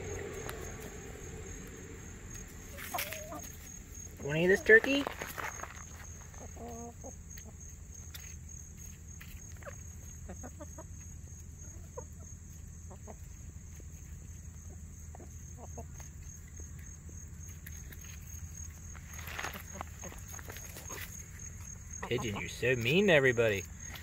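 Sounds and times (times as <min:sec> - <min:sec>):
birds pecking: 0:00.0 - 0:24.0
hen clucking: 0:02.7 - 0:05.0, 0:06.2 - 0:07.6, 0:09.6 - 0:13.4, 0:15.1 - 0:16.0, 0:21.9 - 0:23.0.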